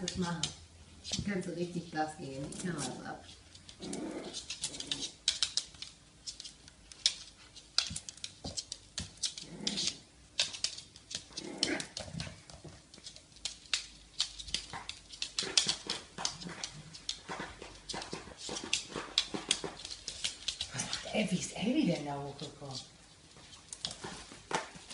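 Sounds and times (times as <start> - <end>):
dog claws clicking on hard floor: 0.0 - 24.9
dogs growling: 3.7 - 5.5, 9.3 - 10.1, 11.2 - 12.4.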